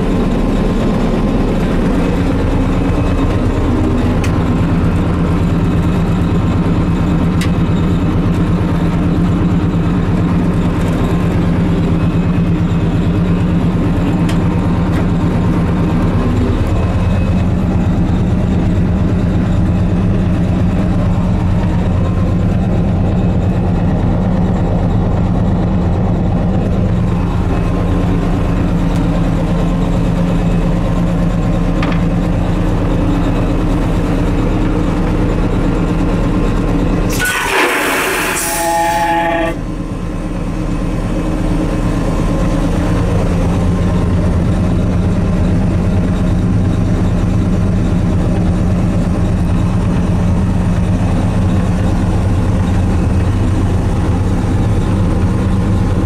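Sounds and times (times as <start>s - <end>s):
diesel engine drone: 0.0s - 56.0s
vacuum toilet flushing: 37.1s - 38.7s.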